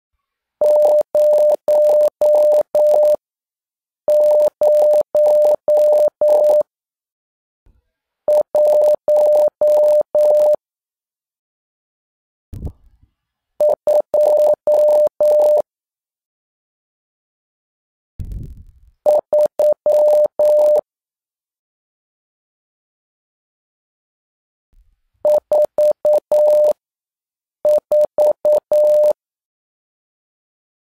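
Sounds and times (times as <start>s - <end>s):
morse code beeps: 0.6s - 3.2s, 4.1s - 6.6s, 8.3s - 10.6s, 13.6s - 15.6s, 19.1s - 20.8s, 25.3s - 26.8s, 27.7s - 29.2s
short low thump: 18.2s - 18.8s.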